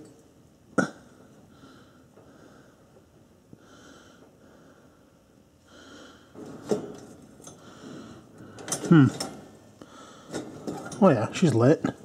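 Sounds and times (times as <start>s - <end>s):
soft slow breaths: 1.2s - 10.6s.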